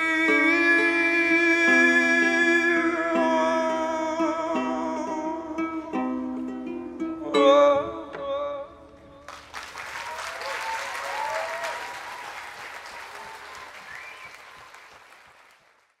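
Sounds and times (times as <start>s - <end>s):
audience applause: 9.3s - 16.0s.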